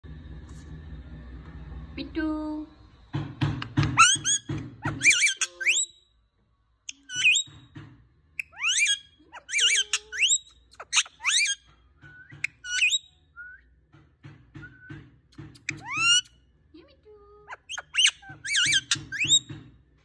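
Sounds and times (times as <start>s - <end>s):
parakeet whistles and screechy chatter: 4.0s - 6.0s, 6.9s - 7.7s, 8.4s - 13.6s, 14.6s - 16.4s, 17.5s - 19.5s.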